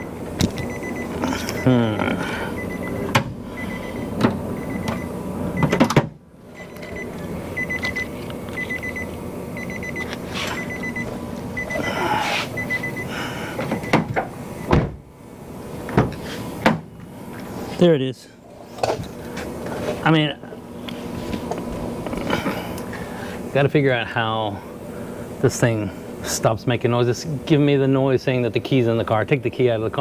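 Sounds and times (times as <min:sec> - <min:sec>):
car warning chime beeping: 0:00.0 - 0:01.7, 0:02.5 - 0:05.9, 0:06.5 - 0:11.9, 0:12.6 - 0:14.7.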